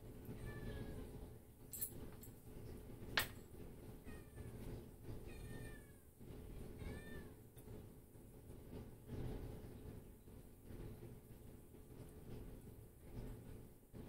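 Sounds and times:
cat meowing: 0:05.3 - 0:06.0, 0:06.7 - 0:07.4.

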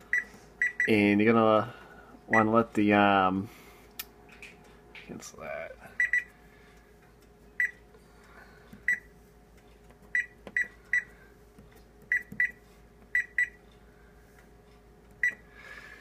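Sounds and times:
microwave keypad beeps: 0:00.1 - 0:01.0, 0:06.0 - 0:06.3, 0:07.6 - 0:07.8, 0:08.9 - 0:09.1, 0:10.2 - 0:11.1, 0:12.1 - 0:12.6, 0:13.2 - 0:13.6, 0:15.2 - 0:15.4.

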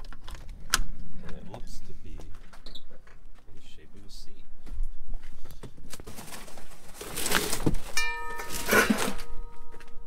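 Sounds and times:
cardboard box scraping on concrete: 0:06.1 - 0:09.4
steady held tone: 0:08.0 - 0:10.0.

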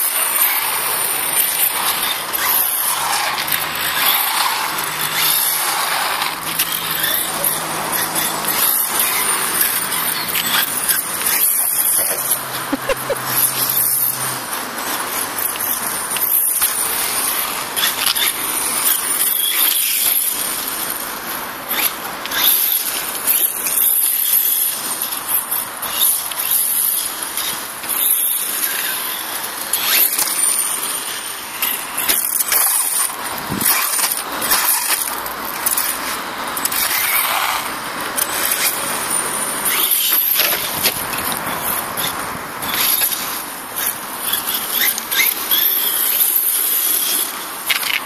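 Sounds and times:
electric motor whine: 0:00.0 - 0:47.9
tyres on asphalt and grass: 0:00.0 - 0:48.0.

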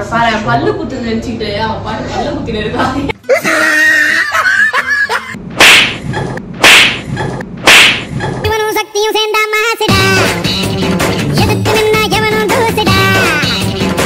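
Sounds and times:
whip swishes: 0:05.6 - 0:06.0, 0:06.6 - 0:07.1, 0:07.7 - 0:08.1.

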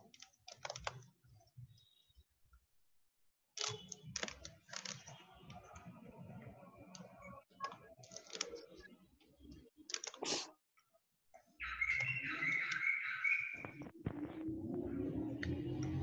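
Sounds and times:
typing on keyboard: 0:00.0 - 0:01.0.

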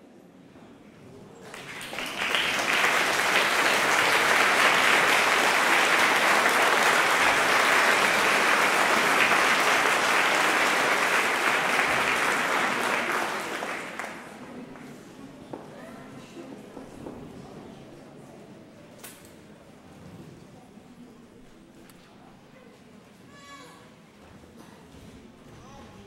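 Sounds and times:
audience applauding: 0:01.4 - 0:14.7.

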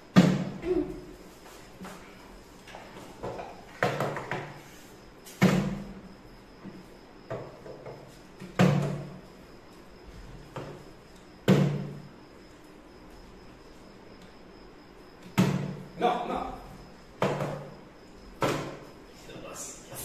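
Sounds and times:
faint knocks and clatters: 0:01.8 - 0:04.6
plastic bottle landing on wooden table: 0:18.4 - 0:18.8.

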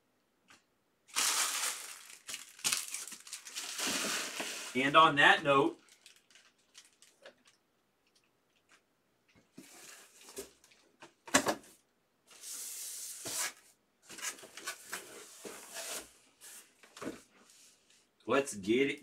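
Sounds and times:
rustling: 0:01.1 - 0:04.9.

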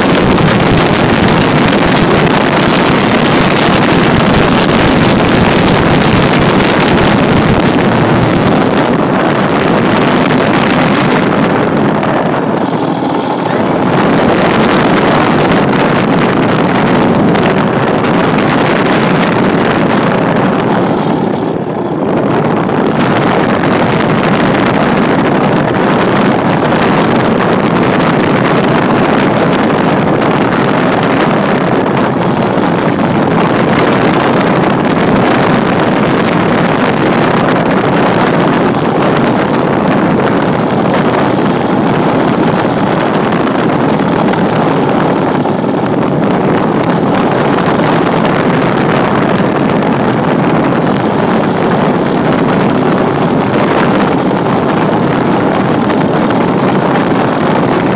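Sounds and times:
air rushing past microphone: 0:00.0 - 0:57.9
model airplane engine running: 0:00.0 - 0:57.9.

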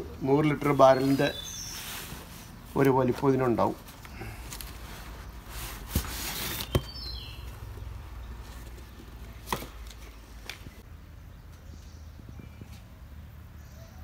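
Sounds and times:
packaging rustling: 0:01.6 - 0:07.7.

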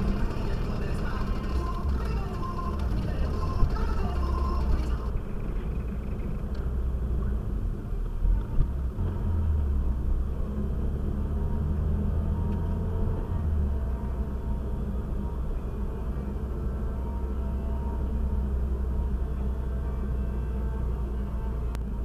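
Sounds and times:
background music: 0:00.0 - 0:05.6, 0:11.2 - 0:22.0
car engine and tyre rumble: 0:00.0 - 0:22.0.

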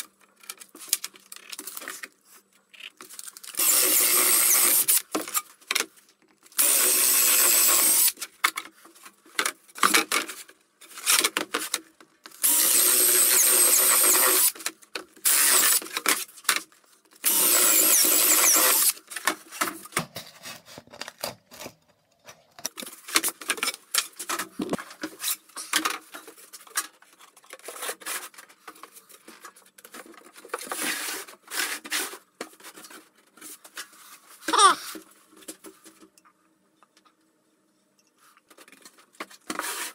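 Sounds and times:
cordless drill boring plywood: 0:03.6 - 0:05.0, 0:06.6 - 0:08.2, 0:12.4 - 0:14.6, 0:15.2 - 0:15.8, 0:17.2 - 0:19.0.

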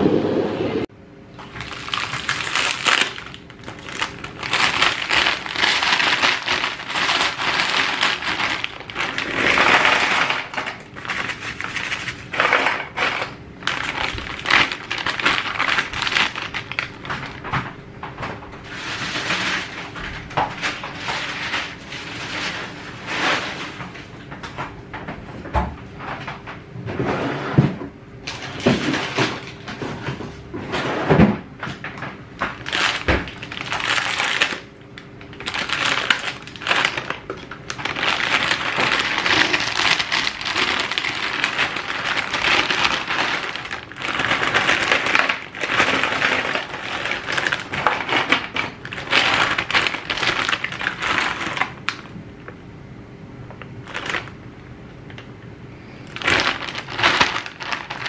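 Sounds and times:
plastic bag crinkling: 0:01.3 - 0:23.7, 0:32.4 - 0:52.2, 0:53.8 - 0:55.3, 0:55.9 - 0:58.0
frozen fries clattering on metal tray: 0:01.4 - 0:24.6, 0:28.3 - 0:52.1, 0:56.1 - 0:58.0.

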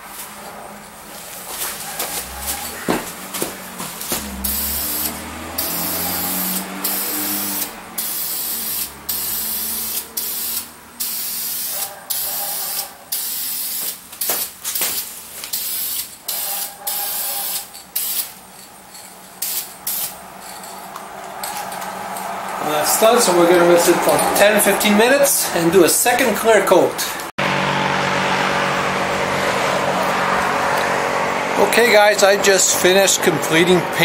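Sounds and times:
aerosol can spraying hiss: 0:04.4 - 0:18.3.

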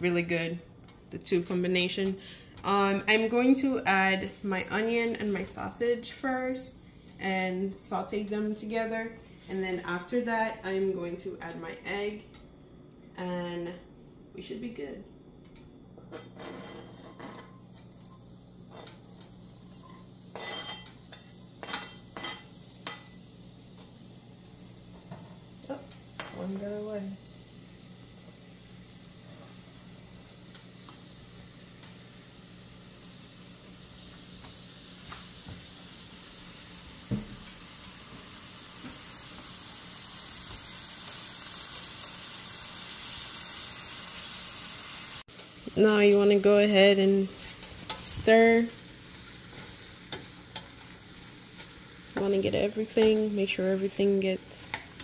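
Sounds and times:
food sizzling in a frying pan: 0:16.4 - 0:55.0.

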